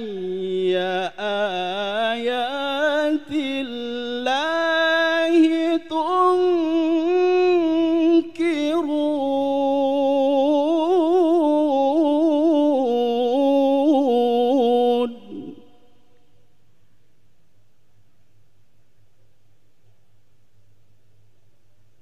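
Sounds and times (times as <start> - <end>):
man reciting melodically: 0.0 - 16.3.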